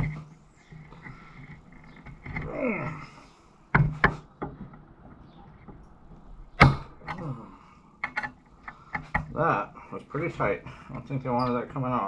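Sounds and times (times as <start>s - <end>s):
sharp metal knocks: 6.6s - 7.2s.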